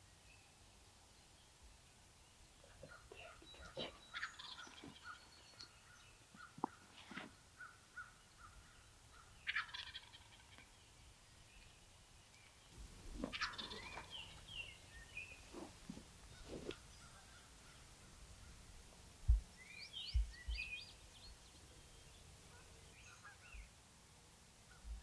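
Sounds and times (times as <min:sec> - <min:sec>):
turkey gobbling: 0:02.7 - 0:05.2, 0:09.4 - 0:10.6, 0:13.1 - 0:14.4, 0:15.5 - 0:17.8.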